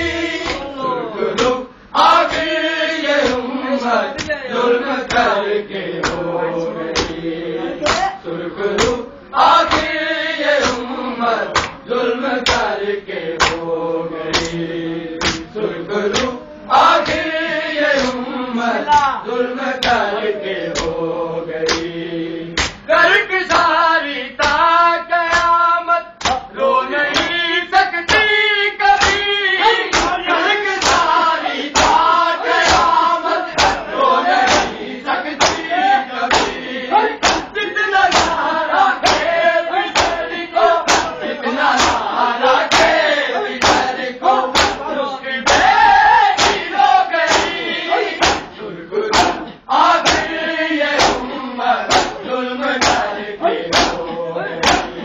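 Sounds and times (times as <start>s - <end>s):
men chanting in unison: 0.0s - 55.0s
hands slapping chests: 7.9s - 8.1s, 11.6s - 11.8s, 13.4s - 13.6s, 15.2s - 15.5s, 21.7s - 21.9s, 22.6s - 22.8s, 26.2s - 26.4s, 29.0s - 29.2s, 29.9s - 30.2s, 30.8s - 31.1s, 32.6s - 33.0s, 33.6s - 33.8s, 34.4s - 34.8s, 35.4s - 35.7s, 37.2s - 37.5s, 38.1s - 38.4s, 39.0s - 39.3s, 40.0s - 40.2s, 40.9s - 41.1s, 41.8s - 42.0s, 44.5s - 44.8s, 46.4s - 46.7s, 47.3s - 47.6s, 48.2s - 48.5s, 49.1s - 49.4s, 50.0s - 50.4s, 51.9s - 52.2s, 52.8s - 53.1s, 53.7s - 54.0s, 54.6s - 55.0s.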